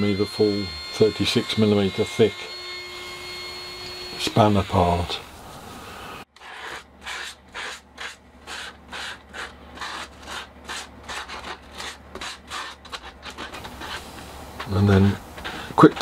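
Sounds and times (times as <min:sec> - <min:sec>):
sandpaper rubbing on plywood: 0:04.2 - 0:16.0.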